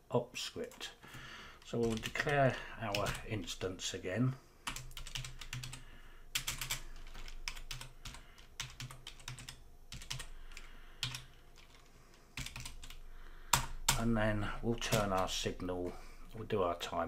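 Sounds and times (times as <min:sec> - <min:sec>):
typing on computer keyboard: 0:01.8 - 0:03.2, 0:04.7 - 0:05.8, 0:06.4 - 0:14.0, 0:14.9 - 0:15.3.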